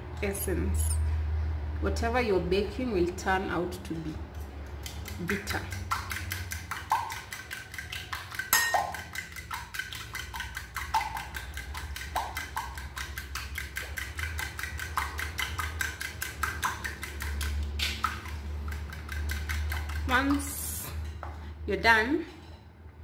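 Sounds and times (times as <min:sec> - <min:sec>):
fork tapping a bowl: 0:04.8 - 0:20.4.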